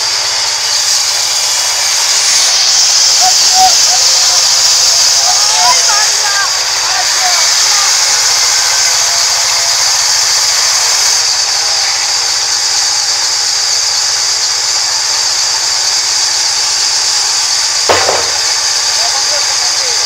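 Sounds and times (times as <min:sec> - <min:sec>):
band saw cutting log: 0:00.0 - 0:11.2, 0:16.5 - 0:20.0
brief knock: 0:17.9 - 0:18.6.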